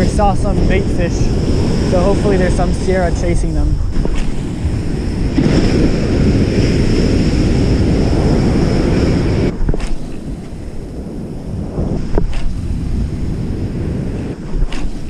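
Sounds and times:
waves breaking on beach: 0:00.0 - 0:15.0
wind buffeting microphone: 0:00.0 - 0:15.0.

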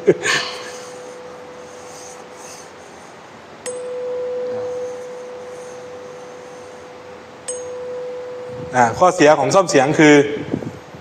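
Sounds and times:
tuning fork ringing: 0:00.0 - 0:11.0
tuning fork tap: 0:03.6 - 0:08.8.

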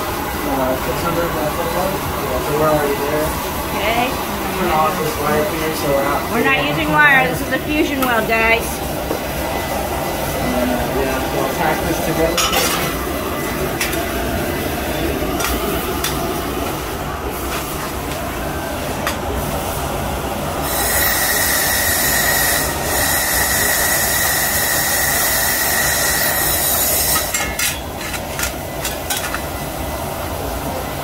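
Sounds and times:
steady low hum: 0:00.0 - 0:20.8
laser welder hiss with whistle: 0:20.6 - 0:27.3.

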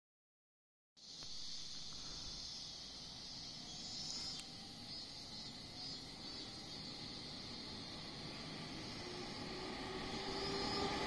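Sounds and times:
fast pulsing insect call: 0:01.0 - 0:11.0
insect chorus: 0:01.0 - 0:11.0
faint click: 0:01.1 - 0:02.0, 0:04.3 - 0:04.6.

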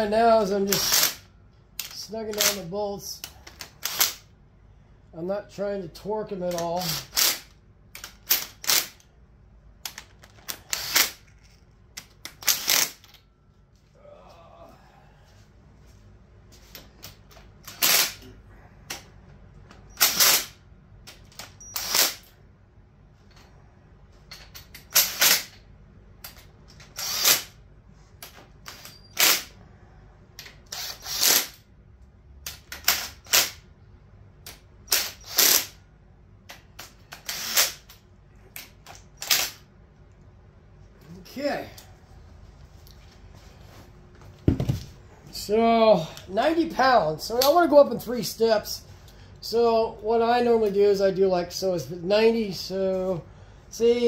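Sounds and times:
impact driver rattling bursts: 0:00.6 - 0:01.3, 0:03.5 - 0:04.3, 0:06.6 - 0:09.0, 0:10.4 - 0:11.2, 0:12.3 - 0:13.2, 0:20.0 - 0:20.6, 0:24.8 - 0:25.5, 0:26.8 - 0:27.6, 0:30.6 - 0:31.6, 0:34.9 - 0:35.8, 0:36.8 - 0:37.9.

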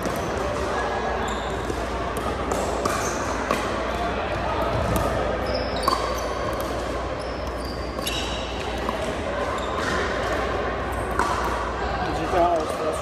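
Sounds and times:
sneakers squeaking on court: 0:00.0 - 0:10.2.

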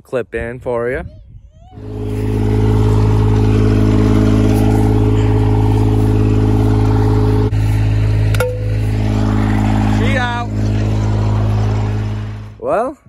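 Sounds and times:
diesel tractor engine running: 0:01.8 - 0:12.6.

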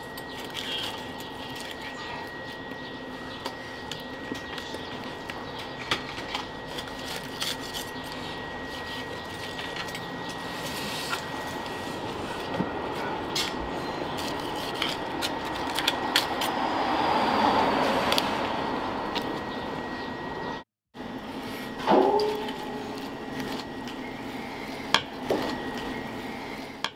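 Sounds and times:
background hum: 0:00.0 - 0:26.9
thin high whine: 0:00.0 - 0:26.9.

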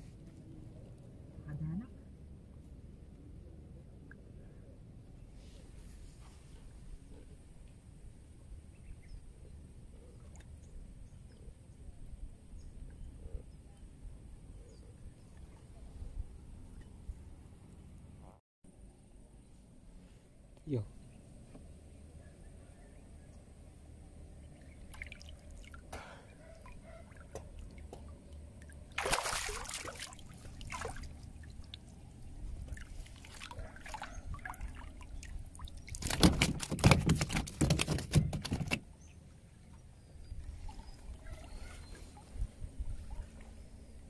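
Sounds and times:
water splashing and sloshing: 0:10.1 - 0:10.9, 0:24.5 - 0:44.0
water dripping and trickling: 0:26.6 - 0:37.0.

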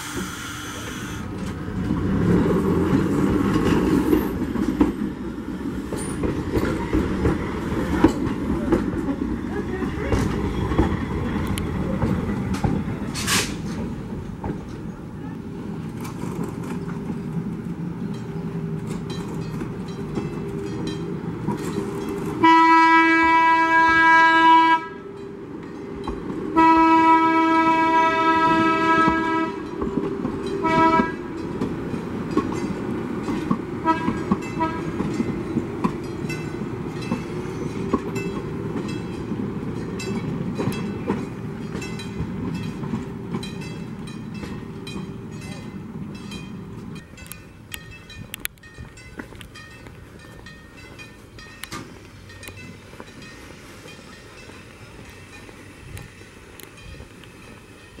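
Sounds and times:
trolley horn blasts: 0:00.0 - 0:01.4, 0:22.4 - 0:25.3, 0:26.5 - 0:29.9, 0:30.6 - 0:31.4, 0:33.8 - 0:35.1
train rumbling past: 0:00.0 - 0:58.0
wheels clicking over rail joints: 0:00.1 - 0:24.1, 0:25.0 - 0:58.0.

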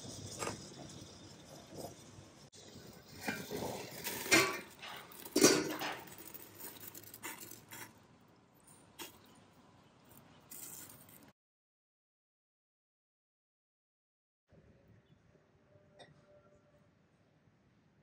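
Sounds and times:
metal lid clanking: 0:03.2 - 0:06.2.

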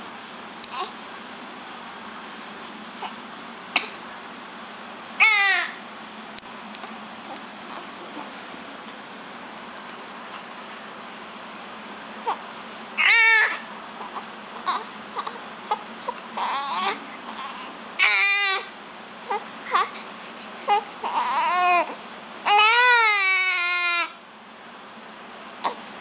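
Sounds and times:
newborn baby crying: 0:00.7 - 0:01.0, 0:05.2 - 0:05.8, 0:12.2 - 0:12.4, 0:13.0 - 0:18.7, 0:19.3 - 0:20.0, 0:20.6 - 0:24.2.

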